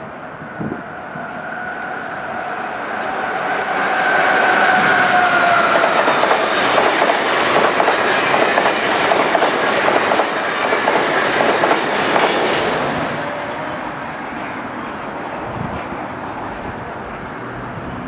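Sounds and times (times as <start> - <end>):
electric locomotive whine: 0.0 - 18.0
train wheels clicking over rail joints: 2.9 - 13.3.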